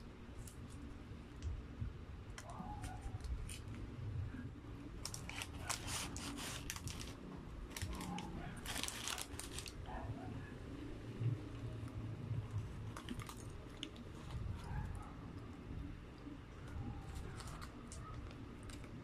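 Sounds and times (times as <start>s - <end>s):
paper crinkling and rustling: 5.0s - 9.8s, 12.8s - 14.9s, 17.0s - 19.0s.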